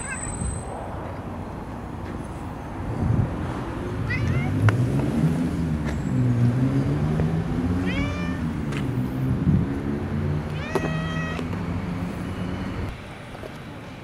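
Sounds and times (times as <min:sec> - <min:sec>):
cat meowing: 0:04.1 - 0:04.6, 0:07.8 - 0:08.6, 0:10.5 - 0:11.5.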